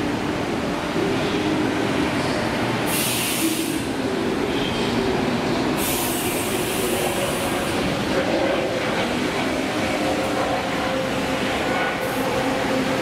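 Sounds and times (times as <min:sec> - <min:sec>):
jet engine roar: 0:05.8 - 0:12.8.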